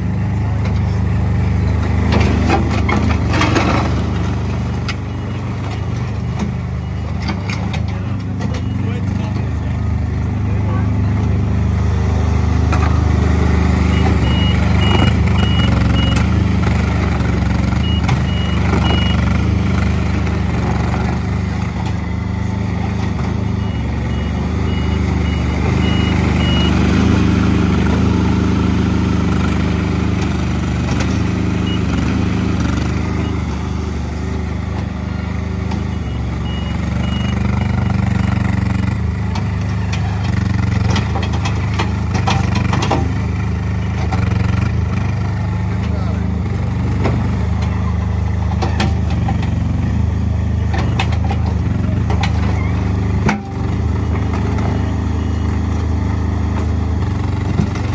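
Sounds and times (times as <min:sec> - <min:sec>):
loader engine running: 0:00.0 - 0:57.9
reversing alarm beeping: 0:13.9 - 0:16.3, 0:23.5 - 0:26.8, 0:35.8 - 0:38.4.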